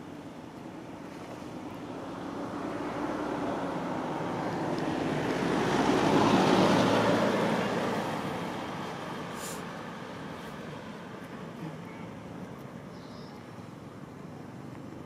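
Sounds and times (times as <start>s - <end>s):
car driving past: 2.1s - 11.0s.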